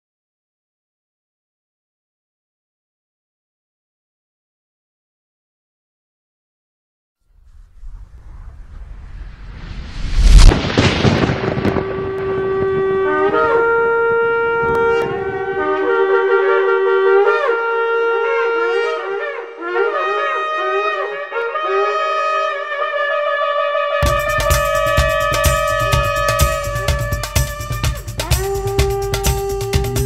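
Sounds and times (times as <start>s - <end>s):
loud boom: 7.4s - 13.4s
shofar blasts: 10.4s - 30.0s.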